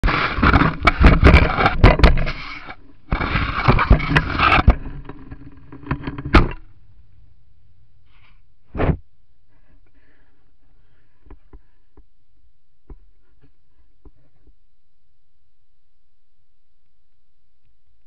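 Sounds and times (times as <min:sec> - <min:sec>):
animal rubbing against microphone: 0:00.0 - 0:04.9.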